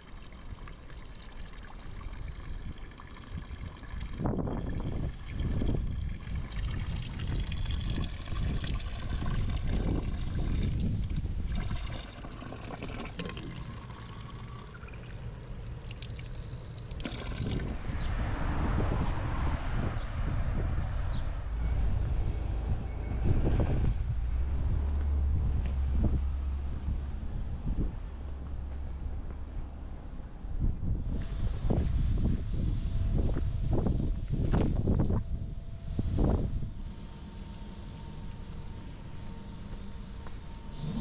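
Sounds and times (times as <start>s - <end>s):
wind rumbling on microphone: 0.0s - 14.6s, 15.9s - 38.8s, 40.3s - 41.0s
water splashing into plastic bottle: 15.7s - 17.8s.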